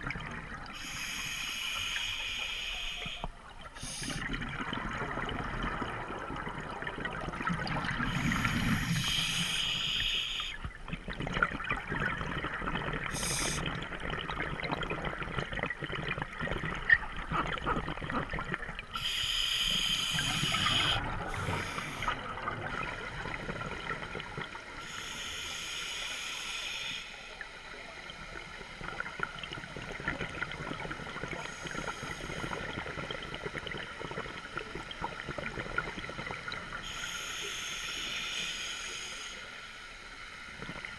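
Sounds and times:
regulator breathing with bubbles: 0:00.0 - 0:27.5.

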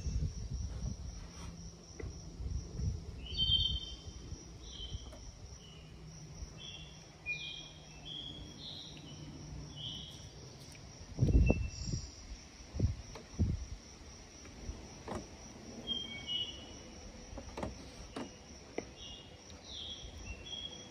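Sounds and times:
insect trill: 0:00.0 - 0:20.9
bird calling in whistled notes: 0:03.2 - 0:04.0, 0:15.8 - 0:16.7.

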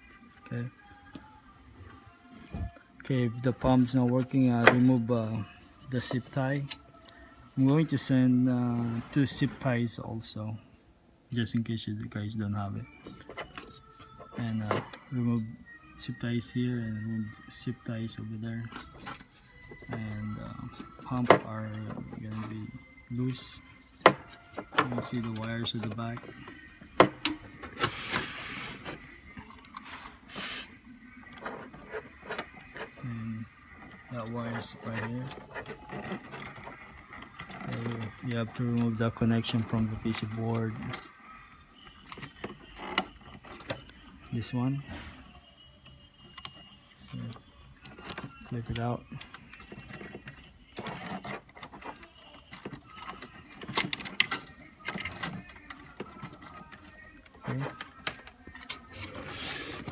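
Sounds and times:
wires scraping: 0:17.4 - 0:44.2, 0:46.4 - 0:59.9.

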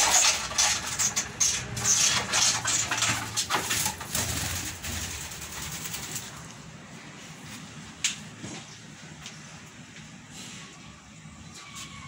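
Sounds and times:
parakeet wings flapping: 0:03.5 - 0:06.5.

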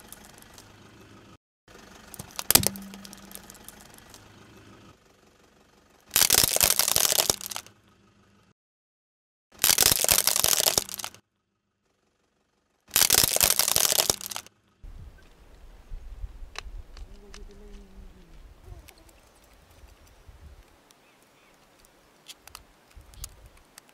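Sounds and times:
plastic toys crunching under tyre: 0:06.1 - 0:07.7, 0:09.6 - 0:11.2, 0:12.9 - 0:14.5.

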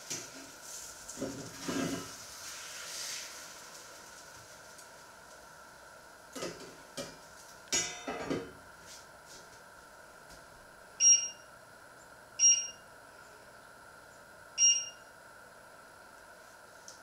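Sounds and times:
high ringing pings: 0:11.0 - 0:11.5, 0:12.4 - 0:12.8, 0:14.6 - 0:15.1.

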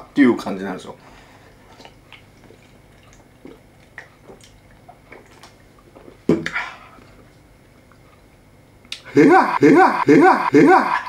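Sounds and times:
wet mouth clicks of chewing: 0:01.7 - 0:05.9.

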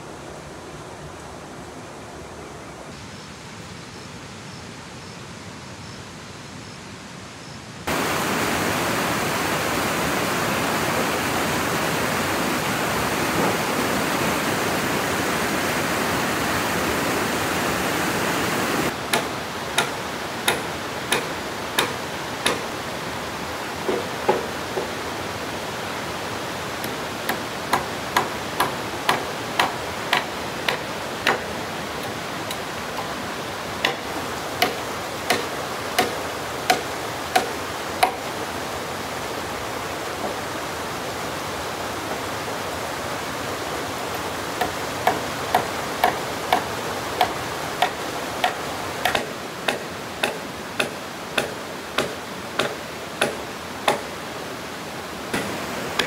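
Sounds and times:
steady hiss: 0:00.0 - 0:56.0
hand tool striking wood: 0:19.1 - 0:22.7, 0:23.9 - 0:25.0, 0:26.8 - 0:33.2, 0:33.8 - 0:38.3, 0:44.1 - 0:54.1, 0:55.3 - 0:56.0.

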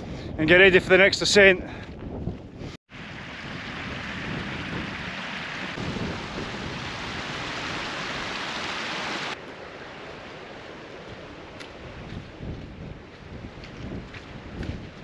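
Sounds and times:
wind rumble on microphone: 0:00.0 - 0:09.4, 0:10.1 - 0:15.0
stream rushing: 0:02.9 - 0:12.0.

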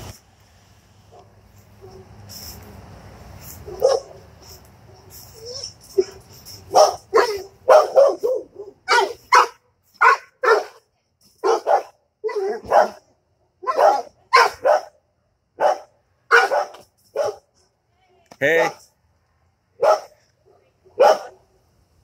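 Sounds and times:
dog barking: 0:03.6 - 0:04.2, 0:06.0 - 0:10.8, 0:11.4 - 0:15.0, 0:15.6 - 0:17.5, 0:19.8 - 0:21.5.

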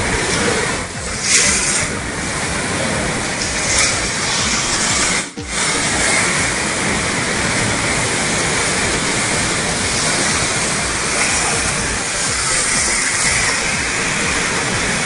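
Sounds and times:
ocean surf breaking: 0:00.0 - 0:15.0.

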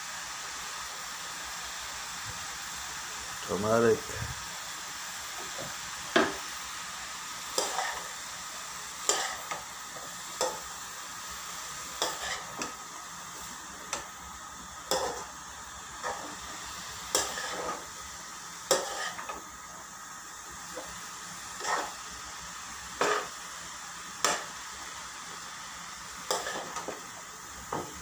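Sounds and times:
vegetables sizzling: 0:00.0 - 0:28.0
spatula scraping frying pan: 0:07.6 - 0:08.2, 0:09.0 - 0:09.6, 0:12.0 - 0:12.7, 0:14.9 - 0:15.3, 0:16.0 - 0:18.0, 0:18.7 - 0:19.4, 0:20.7 - 0:22.1, 0:23.0 - 0:23.4, 0:26.3 - 0:26.9.

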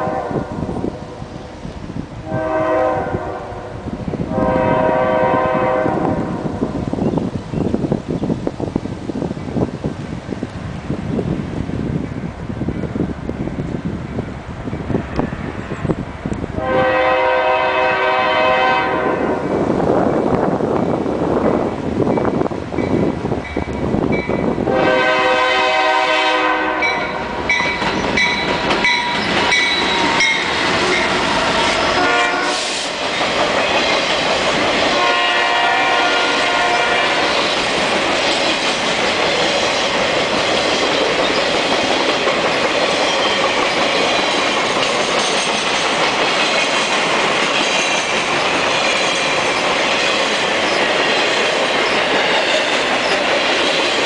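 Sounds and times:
train air horn blasts: 0:00.0 - 0:00.8, 0:02.2 - 0:06.5, 0:16.6 - 0:19.6, 0:24.6 - 0:27.6, 0:29.6 - 0:33.0, 0:34.9 - 0:37.4
wheel on rail noise: 0:00.0 - 0:54.0
wheels clacking over rail joints: 0:26.8 - 0:32.0, 0:32.9 - 0:35.2, 0:37.2 - 0:54.0.

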